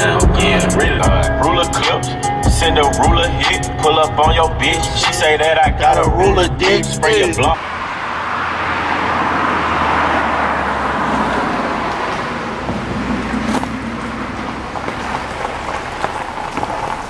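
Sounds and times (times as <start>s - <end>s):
car tyre and road noise: 0.0s - 17.0s
tyres crackling on gravel: 12.1s - 17.0s.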